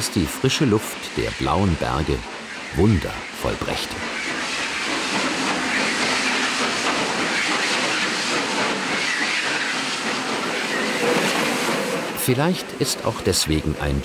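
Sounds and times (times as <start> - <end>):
steam hissing: 0.0 - 14.0
train running noise: 0.0 - 14.0.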